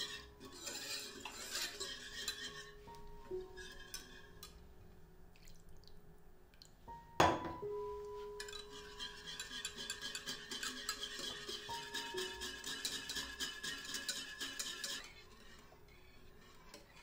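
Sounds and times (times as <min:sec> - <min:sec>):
soft background music: 0:00.0 - 0:17.0
whisk clicking against saucepan: 0:08.4 - 0:15.6.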